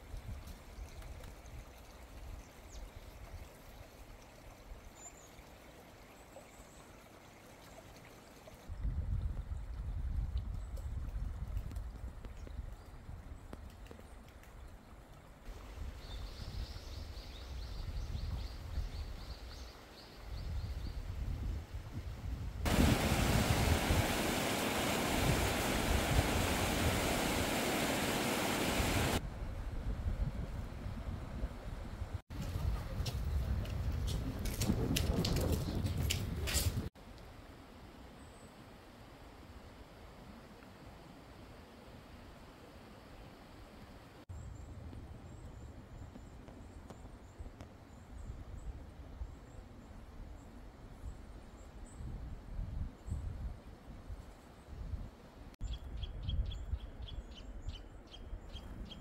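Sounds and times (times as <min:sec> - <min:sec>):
wind rumble on microphone: 0:08.7 - 0:14.8, 0:15.5 - 0:27.8, 0:28.6 - 0:36.9, 0:44.3 - 0:59.0
stream water rushing: 0:22.7 - 0:29.2.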